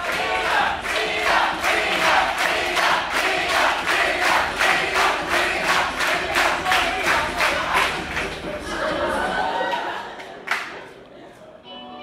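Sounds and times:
crowd clapping in unison: 0.0s - 8.9s, 9.6s - 11.0s
crowd shouting and chanting: 0.0s - 9.6s.

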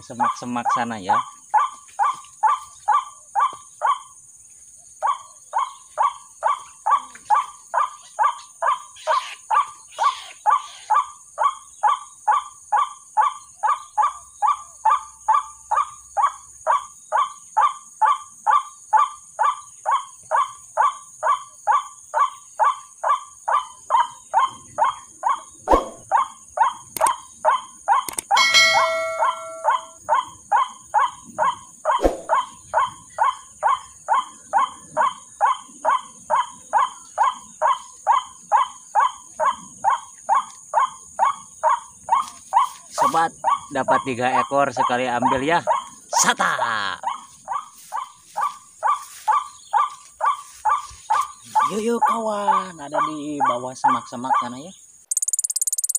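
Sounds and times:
recorded bird call repeating: 22.2s - 30.7s, 47.0s - 55.9s
short electronic chime: 28.4s - 29.9s.

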